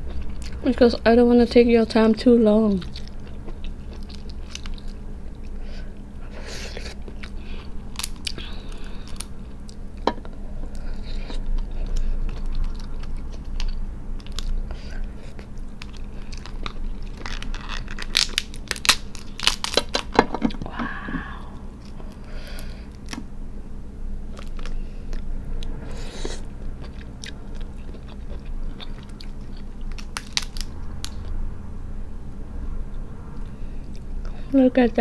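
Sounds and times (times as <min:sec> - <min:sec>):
chewing close to microphone: 0:02.8 - 0:05.6, 0:06.6 - 0:20.7, 0:26.1 - 0:31.3
crab shell cracking: 0:07.9 - 0:10.0, 0:15.8 - 0:20.6, 0:29.0 - 0:31.3.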